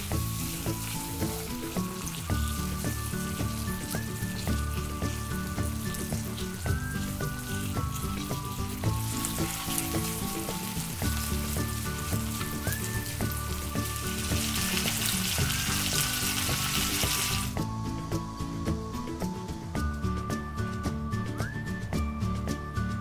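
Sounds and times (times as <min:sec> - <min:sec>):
corn sizzling in a frying pan: 0:00.0 - 0:17.7
light background music: 0:00.0 - 0:23.0.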